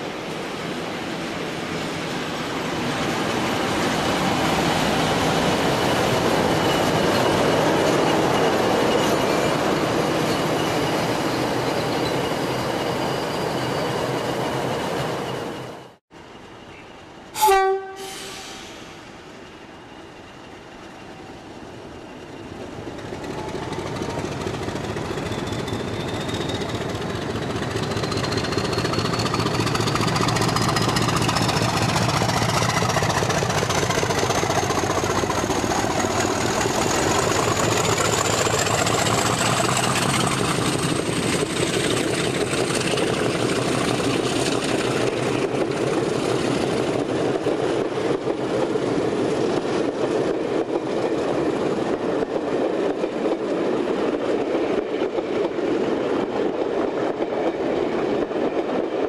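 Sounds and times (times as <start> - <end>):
diesel locomotive engine: 0.0 - 59.0.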